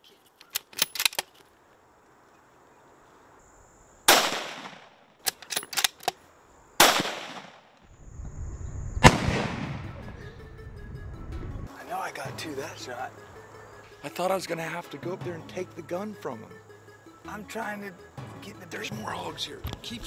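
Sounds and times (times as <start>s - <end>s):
rifle bolt clicking: 0.5s - 1.4s, 5.2s - 6.2s
rifle shots with echo: 4.1s - 5.0s, 6.8s - 7.7s, 9.0s - 10.0s.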